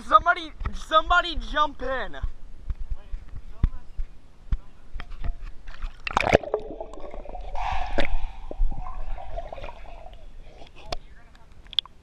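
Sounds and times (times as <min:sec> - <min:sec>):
pool water splashing: 0:05.7 - 0:10.7
muffled underwater gurgling: 0:06.3 - 0:10.8.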